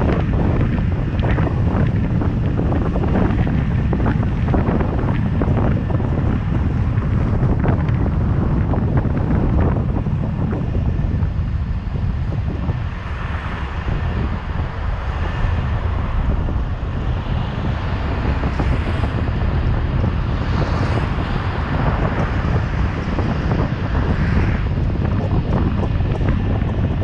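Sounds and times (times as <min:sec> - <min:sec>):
road and traffic noise: 0:00.0 - 0:27.0
wind buffeting microphone: 0:00.0 - 0:27.0.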